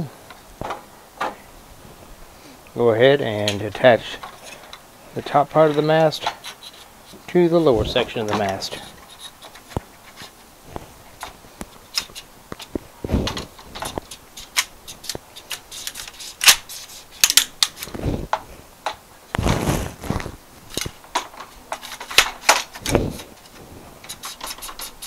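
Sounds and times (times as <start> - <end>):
rubbing rumbles: 5.2 - 17.2, 19.4 - 25.0
antenna sections clicking: 5.5 - 25.0.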